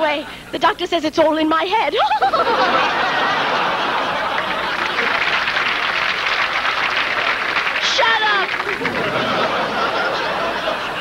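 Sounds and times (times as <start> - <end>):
audience laughing: 2.1 - 7.8, 8.4 - 11.0
audience applauding: 2.8 - 11.0.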